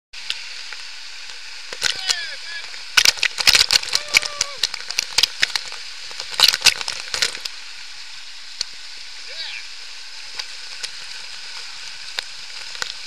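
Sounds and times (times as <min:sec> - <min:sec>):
waterfall hiss: 0:00.2 - 0:13.0
water splattering on camera: 0:01.7 - 0:07.6.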